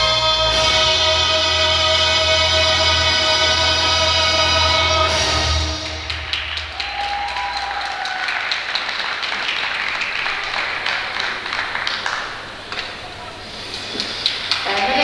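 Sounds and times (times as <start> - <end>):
audience applauding: 4.8 - 15.0.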